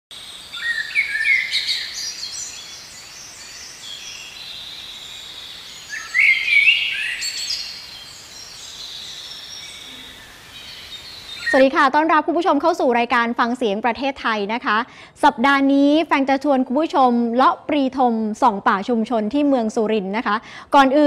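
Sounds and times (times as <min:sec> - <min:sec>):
birds chirping and whistling: 0:00.2 - 0:11.8.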